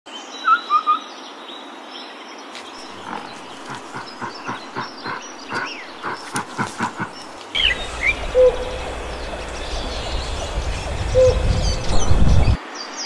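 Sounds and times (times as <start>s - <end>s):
bird chirps: 2.8s - 12.6s
short bird calls: 2.8s - 12.6s
high bird whistles: 7.6s - 12.6s.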